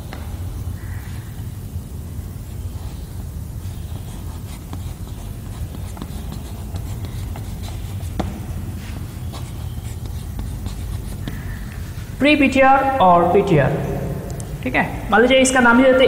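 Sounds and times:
steady low hum: 0.0 - 16.0
chalk scratching on chalkboard: 2.6 - 12.2.

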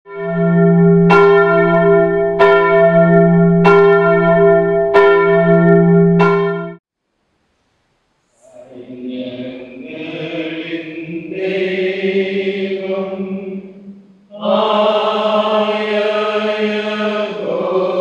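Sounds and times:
church bell tolling: 0.1 - 6.8.

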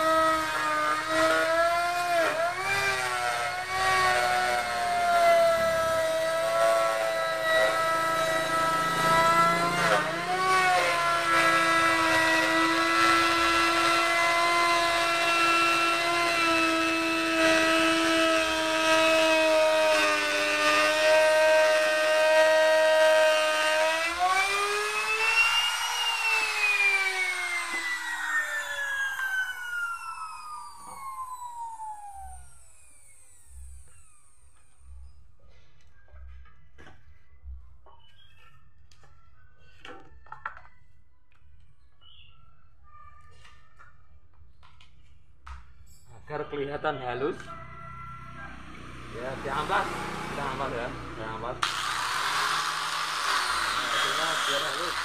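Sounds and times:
router winding down: 0.0 - 34.8, 48.6 - 55.0
electric router whining: 0.0 - 35.0, 48.4 - 55.0.

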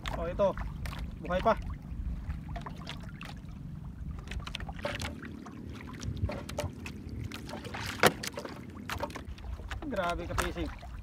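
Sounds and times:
water around boat: 0.0 - 11.0
wind: 0.0 - 11.0
light clicks and taps: 6.3 - 10.7.

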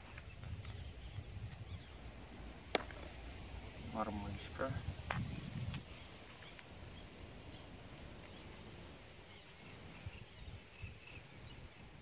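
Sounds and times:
bird chirps: 0.1 - 2.0, 5.3 - 12.0.

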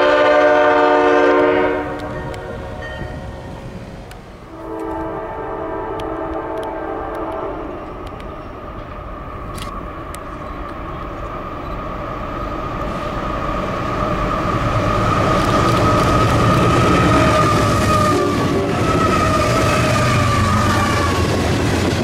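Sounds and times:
train air horn: 0.0 - 2.6, 4.5 - 7.9, 16.9 - 21.4
locomotive rumble: 0.0 - 22.0.

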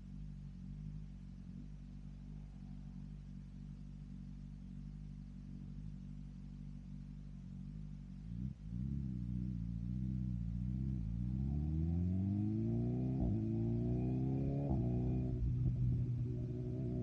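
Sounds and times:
motorcycle engine revving: 5.6 - 17.0.

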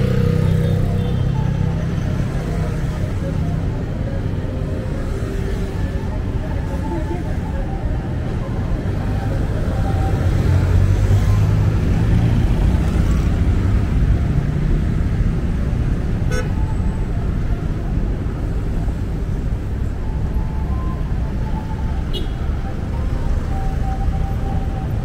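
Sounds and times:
traffic passing close by: 0.0 - 25.0
vehicle horn beep: 16.3 - 16.6, 22.1 - 22.4.

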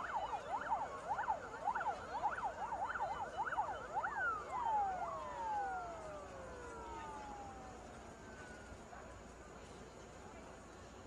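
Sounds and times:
emergency vehicle siren yelping: 0.0 - 8.9.

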